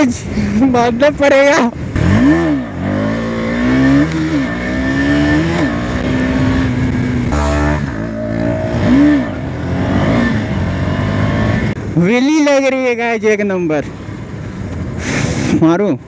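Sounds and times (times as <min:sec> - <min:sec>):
motorcycle engine revving: 0:01.8 - 0:12.0.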